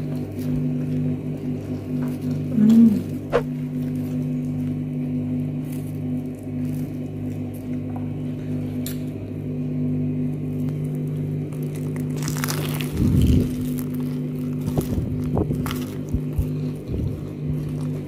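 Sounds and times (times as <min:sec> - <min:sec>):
steady low hum: 0:00.0 - 0:18.0
crunching bites of fried food: 0:10.4 - 0:18.0
chewing: 0:10.5 - 0:18.0.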